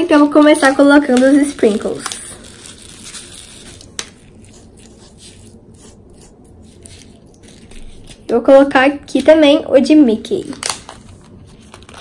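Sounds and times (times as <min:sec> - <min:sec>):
sprinkles shaken from plastic bag: 0:00.1 - 0:05.4
fingertip rubbing slime: 0:02.7 - 0:08.0.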